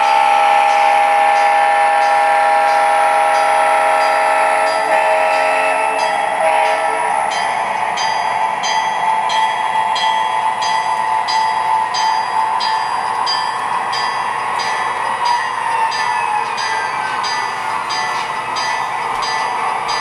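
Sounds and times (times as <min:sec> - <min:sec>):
model locomotive engine hum: 0:00.0 - 0:20.0
rhythmic clickety-clack: 0:00.0 - 0:20.0.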